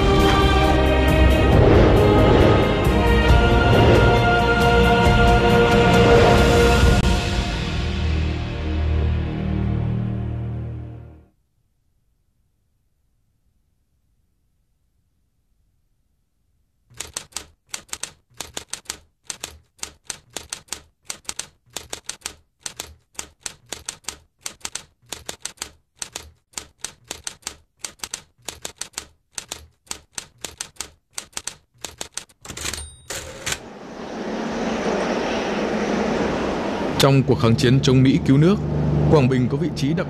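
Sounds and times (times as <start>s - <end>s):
rising rushing noise: 0.0s - 9.0s, 33.6s - 39.5s
typewriter keys clacking: 16.9s - 33.6s
typewriter bell ring: 27.1s - 33.6s.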